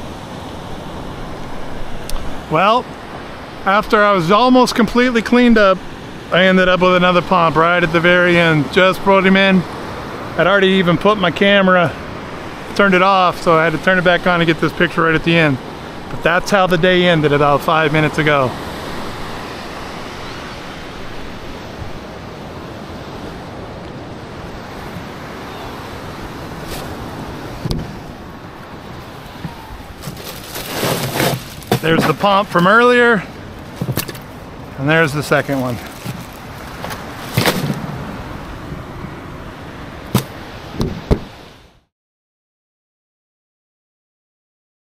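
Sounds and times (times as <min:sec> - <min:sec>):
surf breaking on beach: 0:00.0 - 0:41.6
wind buffeting microphone: 0:15.2 - 0:41.5
bag of ice rustling and crunching: 0:29.0 - 0:34.4, 0:35.0 - 0:38.0
sharp knock: 0:40.1 - 0:41.3.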